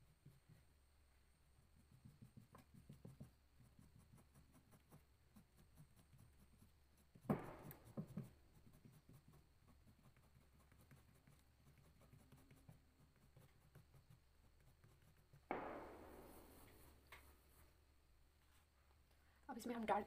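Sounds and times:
crayon scratching on paper: 1.7 - 15.5.

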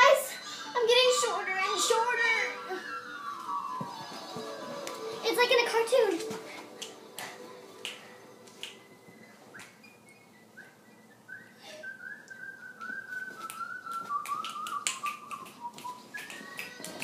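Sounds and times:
whistled melody: 2.2 - 5.1, 6.8 - 17.0.

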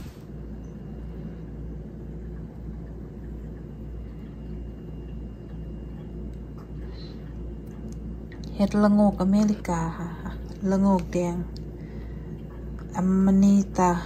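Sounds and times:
low hum and rumble: 0.0 - 14.0.

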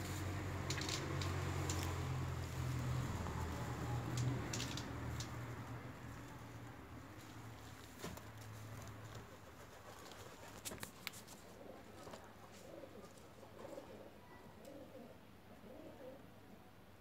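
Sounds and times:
dove cooing: 11.6 - 16.4.

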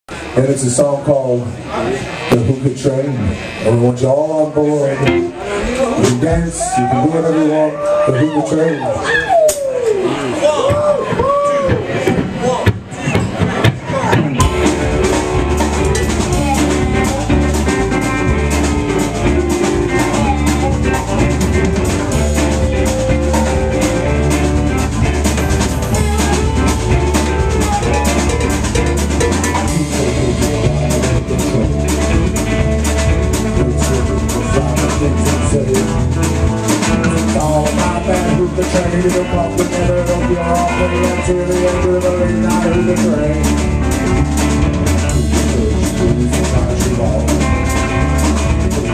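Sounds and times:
live band playing: 0.1 - 48.9
drum kit beat: 5.0 - 7.1, 10.6 - 48.9
low bass line: 13.9 - 48.9.

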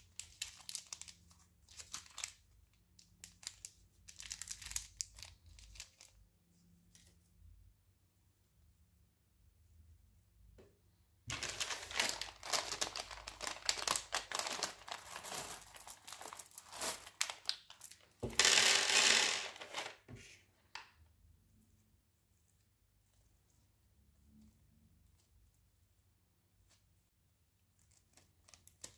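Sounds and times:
bag rustling: 11.3 - 20.0
plastic bag crinkling: 11.3 - 20.1.

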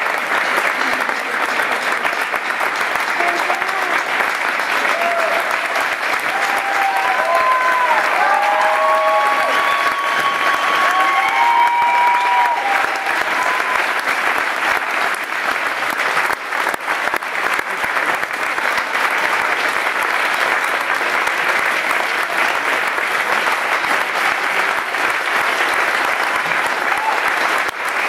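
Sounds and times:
crowd applauding: 0.0 - 28.0.

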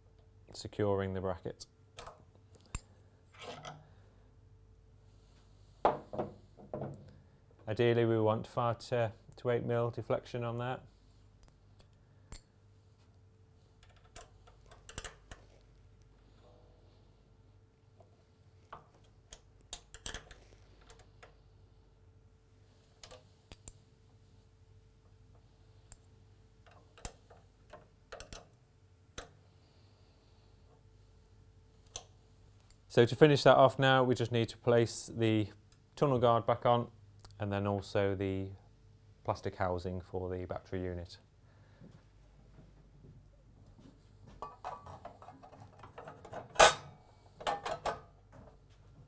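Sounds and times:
faint steady hum: 0.0 - 49.0
plastic guard clicks and rattles: 26.7 - 28.5.

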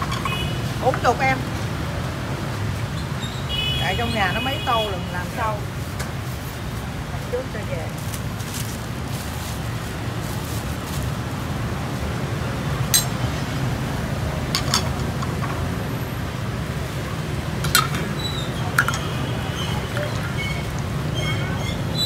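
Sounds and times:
ceramic bowls clinking: 12.9 - 13.3, 14.5 - 15.4, 17.6 - 21.6.

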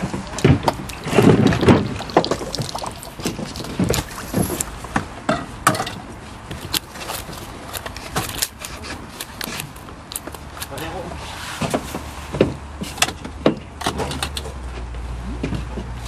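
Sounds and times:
fish splashing in water: 0.0 - 4.9.

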